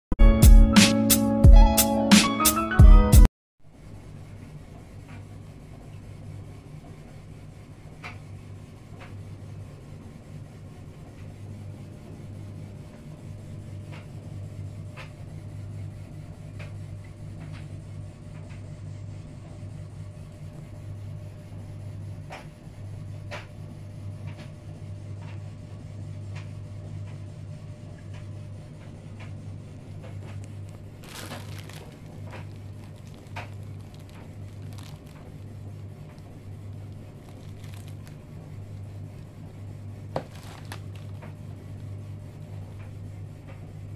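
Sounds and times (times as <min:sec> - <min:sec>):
steady low hum: 0:03.7 - 0:43.9
plastic bag crinkling: 0:30.4 - 0:35.5, 0:36.8 - 0:38.2, 0:40.1 - 0:41.2.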